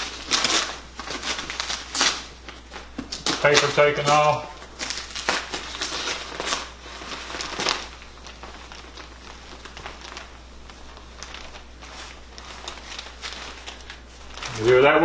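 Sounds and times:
insulation rustling: 0:00.0 - 0:15.0
paper crinkling and crackling: 0:00.0 - 0:15.0.

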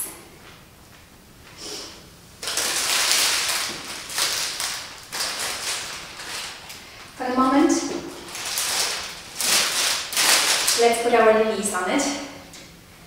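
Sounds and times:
plastic wrap crinkling: 0:02.4 - 0:11.3.

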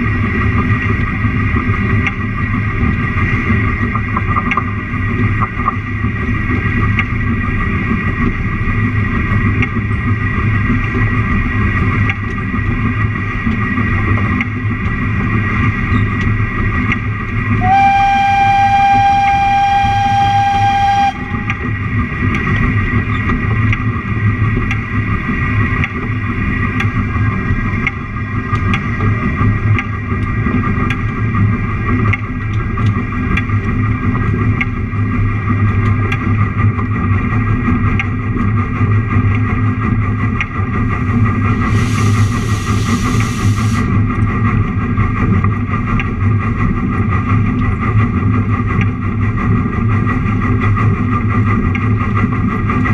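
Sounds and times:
sharp clicks of train wheels: 0:00.0 - 0:52.9
train rumbling on track: 0:00.0 - 0:52.9
train warning horn: 0:17.6 - 0:21.6.

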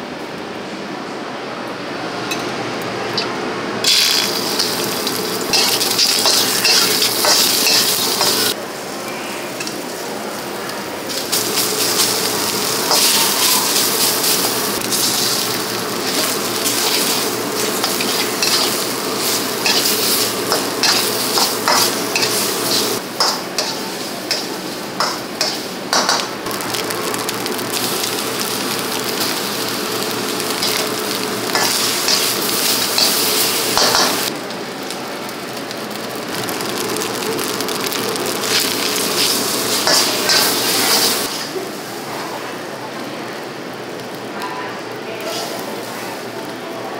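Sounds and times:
food sizzling in a wok: 0:03.2 - 0:46.9
spatula scraping a wok: 0:03.9 - 0:08.6, 0:16.0 - 0:26.1, 0:39.2 - 0:41.5.

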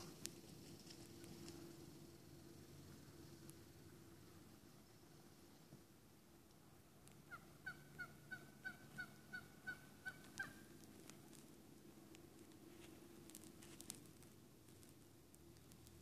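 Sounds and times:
turkey yelping: 0:07.2 - 0:11.4.

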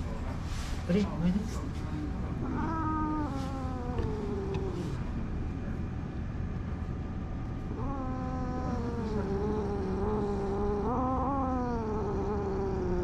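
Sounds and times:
cat growling: 0:02.1 - 0:05.4, 0:07.6 - 0:13.0.

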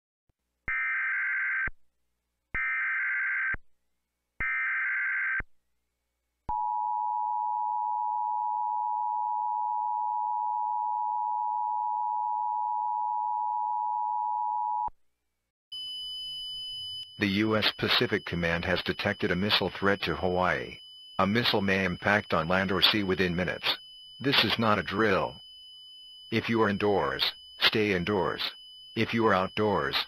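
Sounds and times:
two-tone alert signal: 0:15.8 - 0:25.4
harsh digital warble bursts: 0:17.0 - 0:30.0.

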